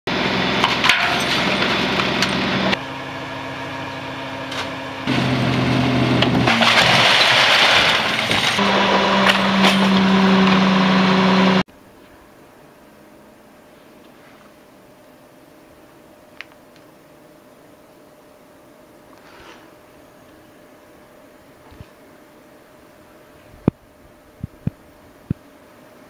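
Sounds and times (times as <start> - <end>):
garbage truck diesel engine: 0.1 - 11.7
hydraulic packer running: 0.1 - 11.7.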